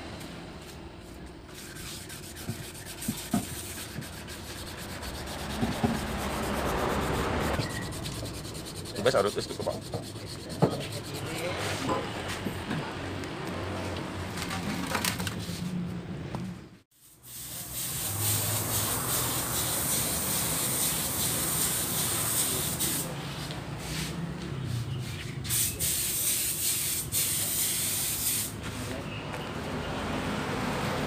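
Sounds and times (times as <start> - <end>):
spraying hiss: 17.0 - 23.1.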